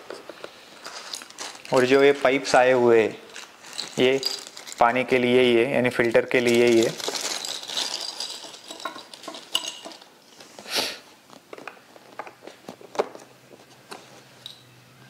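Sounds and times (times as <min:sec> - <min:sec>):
plastic bag crinkle: 0:00.6 - 0:10.1
plastic pipe pieces clattering: 0:03.3 - 0:05.0, 0:06.0 - 0:10.1.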